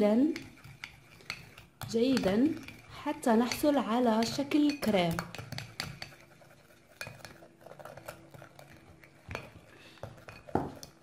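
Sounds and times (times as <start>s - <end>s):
plastic spoon scraping gritty paste: 0.0s - 11.0s
spoon tapping glass dish: 0.3s - 2.8s, 3.4s - 6.2s.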